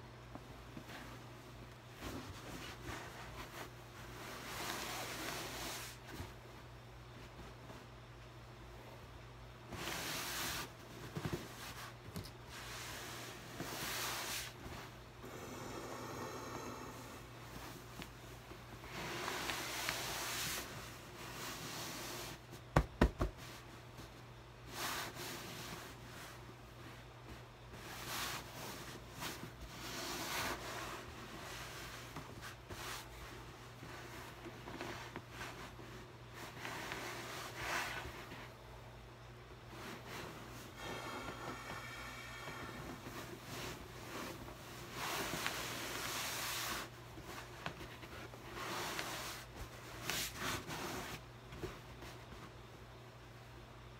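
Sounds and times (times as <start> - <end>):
hand rubbing and patting shirt: 0.0 - 8.1, 9.7 - 38.6, 39.6 - 52.7
steady low hum: 0.0 - 53.9
fabric swishing: 39.7 - 52.6.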